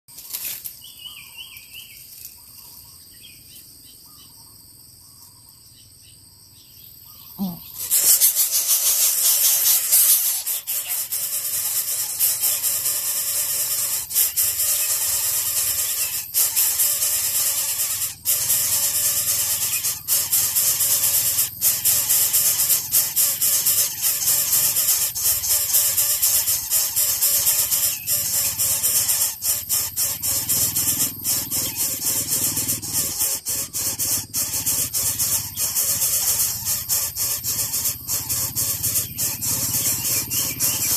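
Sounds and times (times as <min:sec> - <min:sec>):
faint bird chirps: 0:00.1 - 0:40.9
nestlings hissing squeal: 0:07.4 - 0:40.9.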